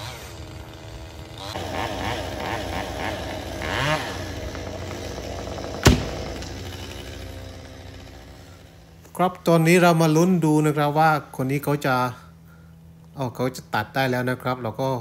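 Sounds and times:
chainsaw revving and cutting: 0:00.0 - 0:10.0
log hitting ground: 0:03.7 - 0:07.0.

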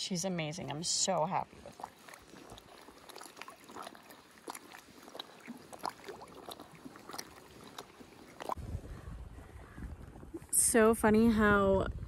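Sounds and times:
water lapping against float tube: 0:00.0 - 0:10.8
wind rumble on microphone: 0:08.4 - 0:12.0.

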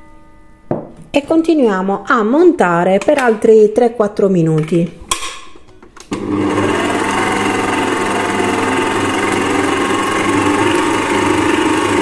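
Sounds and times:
stand mixer whisking batter: 0:06.2 - 0:12.0.

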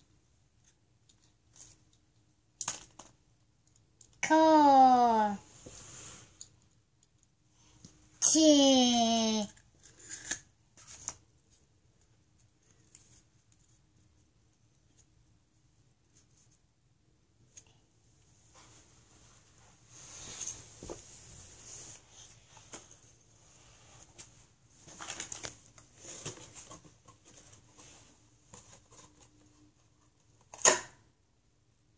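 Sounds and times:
paper rustling: 0:24.0 - 0:29.7
close handling noise: 0:24.0 - 0:31.1.

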